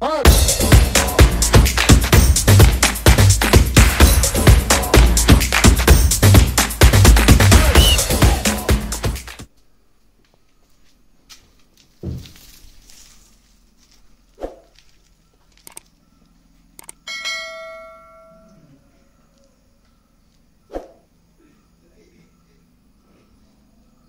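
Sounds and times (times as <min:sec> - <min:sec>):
electronic dance music: 0:00.0 - 0:09.5
knocks and thud: 0:12.0 - 0:12.4
quick clicks: 0:15.5 - 0:15.9, 0:16.8 - 0:17.0
bell ding: 0:17.1 - 0:18.6.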